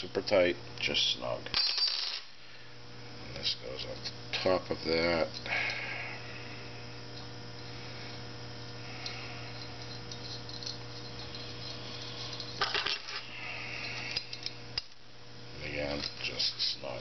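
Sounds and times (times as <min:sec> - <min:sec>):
steady electrical hum: 0:00.0 - 0:17.0
small metallic clicks and clinks: 0:09.0 - 0:13.2.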